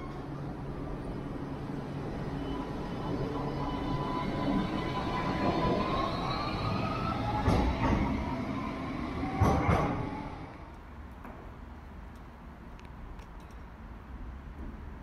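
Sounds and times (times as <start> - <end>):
tram traction motor whine: 0.0 - 10.8
wheel and rail rumble: 0.0 - 15.0
wheels clanking on track: 2.3 - 10.5.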